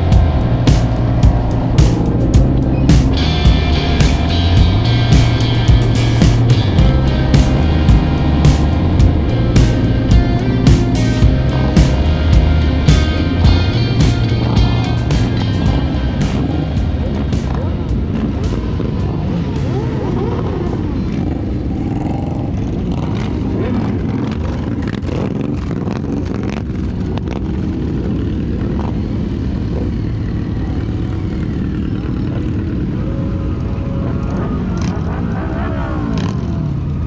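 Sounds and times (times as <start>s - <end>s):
motorcycle engines rumbling: 0.0s - 37.0s.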